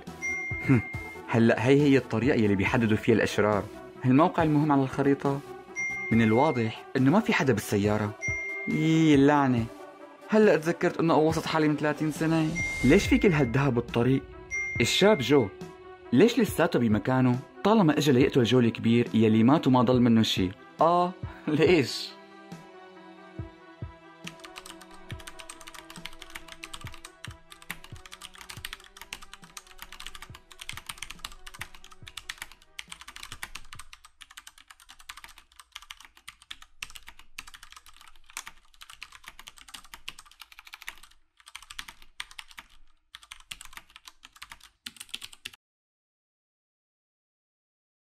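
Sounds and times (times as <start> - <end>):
music track: 0.0 - 34.0
keyboard typing clicks: 24.3 - 45.6.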